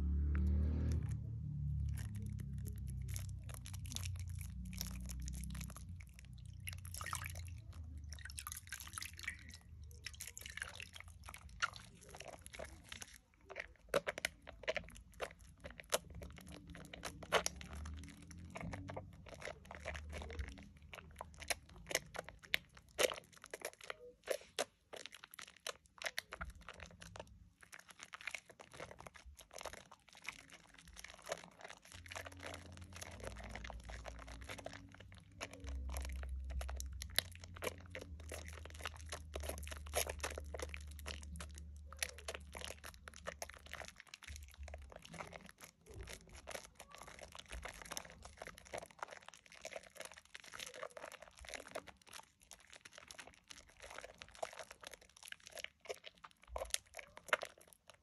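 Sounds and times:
low handling rumble: 0.0s - 8.4s
wet soap lather squelching: 0.0s - 58.0s.

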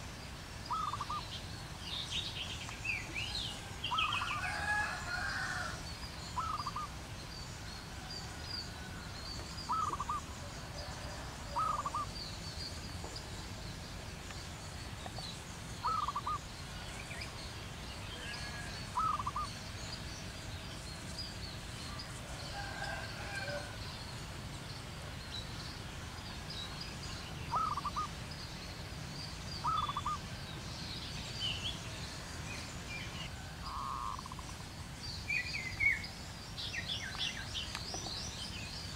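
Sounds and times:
small birds chirping: 0.0s - 38.9s
bird rolling call: 9.7s - 10.2s, 11.5s - 12.1s, 15.8s - 16.4s, 18.3s - 19.5s, 27.5s - 28.1s.

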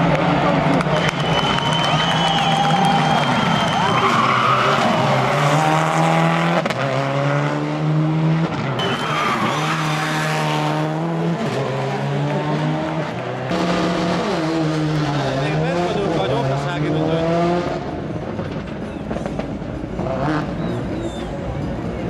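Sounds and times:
rally car engines revving: 0.0s - 22.0s
tyres squealing and skidding: 0.9s - 6.0s, 8.6s - 10.6s.

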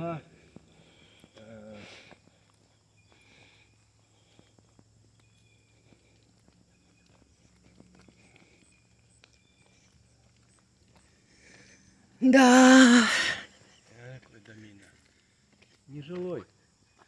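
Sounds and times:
footstep clicks: 4.3s - 11.6s.

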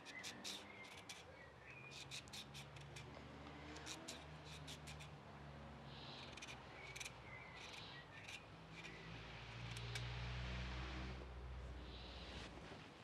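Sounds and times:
peeler scraping carrot: 0.0s - 1.3s, 1.9s - 3.1s, 3.8s - 5.1s.

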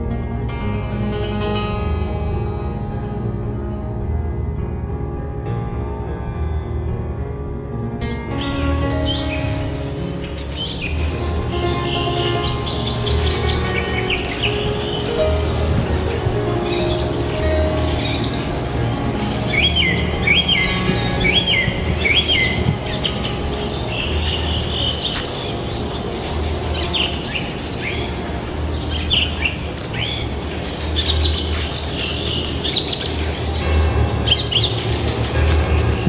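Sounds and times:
songbirds singing: 8.3s - 36.0s.

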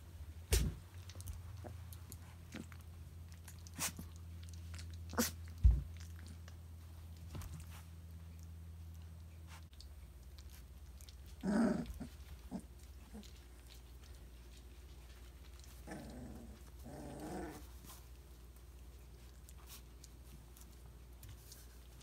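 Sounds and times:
puppy growl-like calls: 11.0s - 13.8s, 15.6s - 18.0s.

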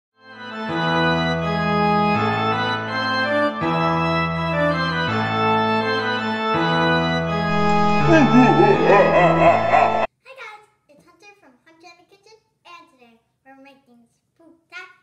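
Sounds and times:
organ playing held chords: 0.2s - 10.1s.

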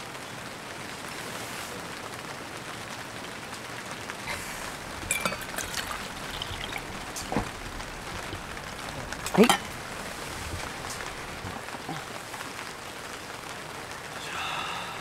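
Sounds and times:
steady hiss: 3.9s - 15.0s
coffee pouring into tumbler: 5.0s - 7.3s.

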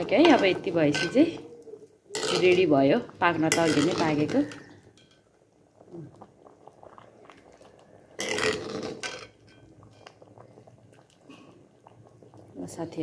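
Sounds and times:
ladle stirring simmering dal: 0.0s - 13.0s.

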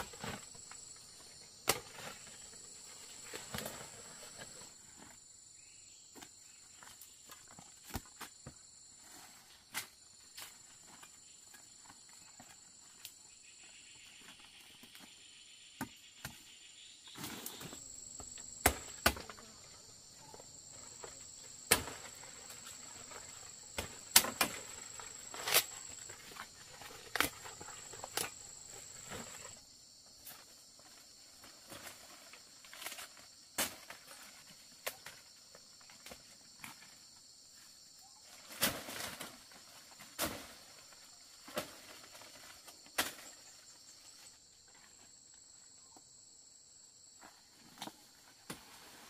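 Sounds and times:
high-pitched insect chorus: 0.0s - 49.0s.

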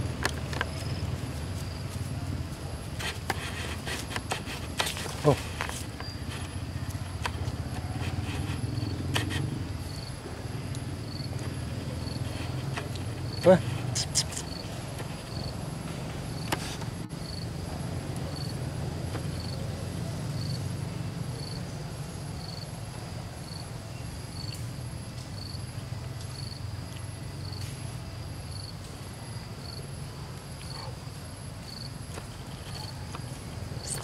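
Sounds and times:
faint rustles: 0.0s - 10.0s, 10.8s - 17.1s
insect chirping: 0.0s - 34.0s.

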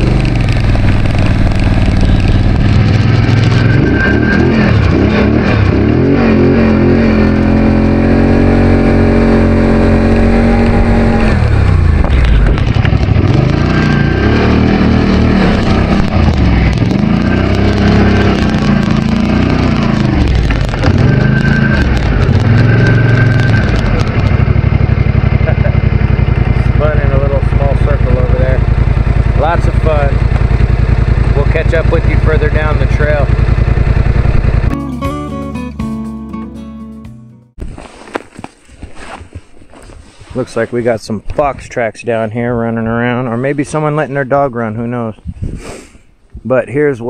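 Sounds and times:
snowmobile engine revving: 0.0s - 34.8s.

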